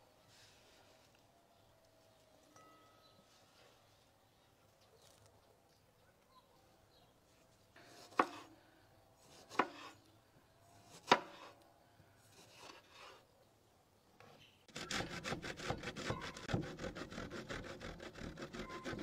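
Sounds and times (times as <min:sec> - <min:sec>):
knife slicing a tomato: 0:07.9 - 0:08.5, 0:09.2 - 0:10.0, 0:10.8 - 0:11.6.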